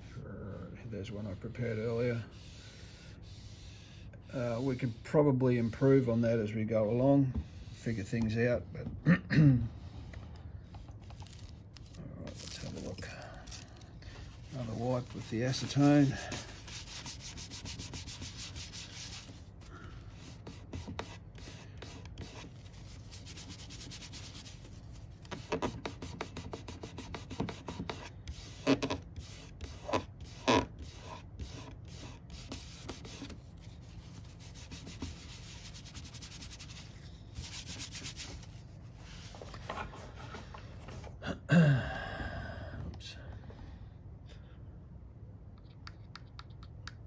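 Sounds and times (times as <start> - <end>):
rubbing over wing surface: 14.2 - 19.5.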